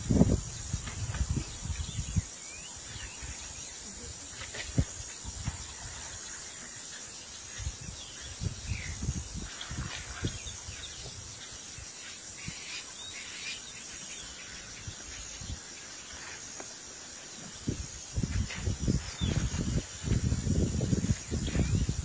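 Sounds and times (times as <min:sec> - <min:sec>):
insects hissing: 0:00.0 - 0:22.0.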